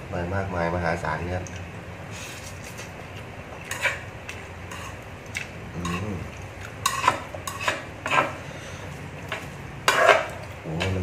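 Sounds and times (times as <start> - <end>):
person humming: 5.8 - 6.3.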